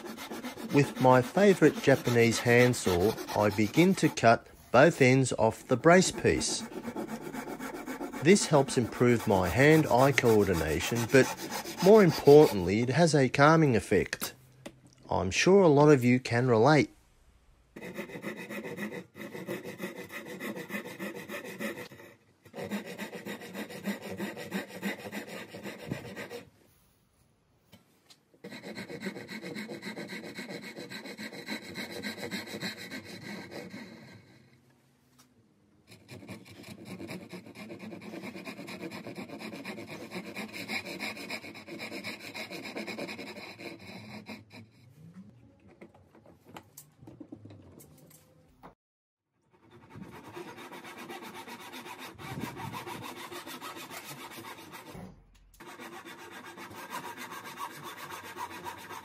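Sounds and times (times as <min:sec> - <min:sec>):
handsaw cutting wood: 0:00.0 - 0:13.2, 0:17.8 - 0:26.5, 0:28.4 - 0:34.4, 0:35.9 - 0:44.8, 0:49.5 - 0:59.0.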